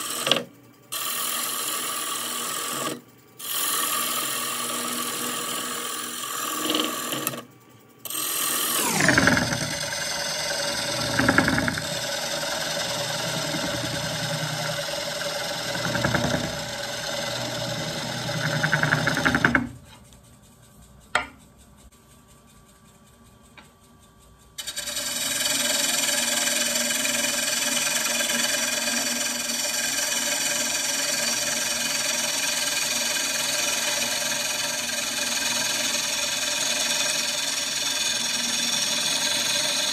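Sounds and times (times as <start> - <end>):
gouge cutting wood: 0.0 - 7.4, 8.1 - 19.8, 24.6 - 39.9
wood lathe running: 0.0 - 19.8, 24.6 - 39.9
falling whine: 8.8 - 18.9.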